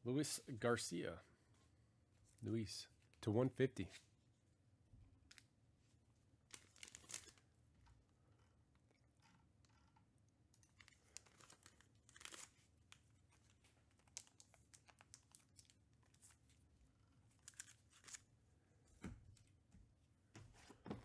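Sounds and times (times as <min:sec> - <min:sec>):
packaging crinkling and tearing: 0:06.5 - 0:07.5, 0:10.6 - 0:16.6, 0:17.3 - 0:18.3.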